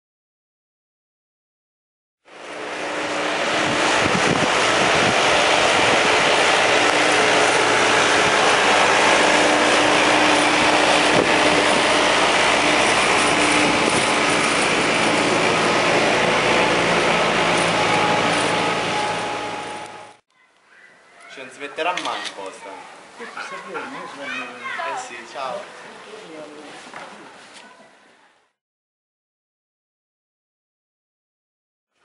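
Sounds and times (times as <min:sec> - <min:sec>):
loud even rushing noise: 0:02.3 - 0:20.2
tractor engine running: 0:02.3 - 0:20.2.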